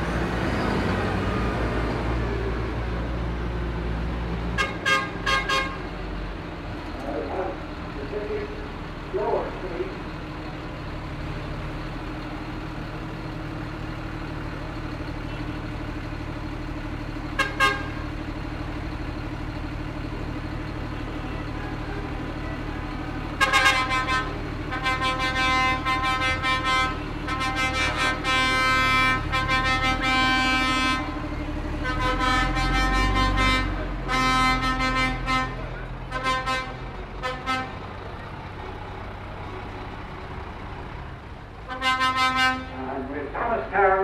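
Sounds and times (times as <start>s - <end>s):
diesel vehicles idling: 0.0s - 44.0s
vehicle horn blasts: 4.6s - 5.8s, 17.4s - 18.0s, 23.4s - 31.2s, 31.8s - 37.8s, 41.7s - 42.9s.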